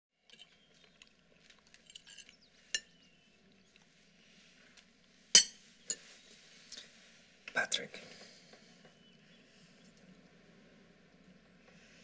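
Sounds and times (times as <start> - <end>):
cutlery clinking against dishes: 1.8 - 3.0, 5.4 - 6.1.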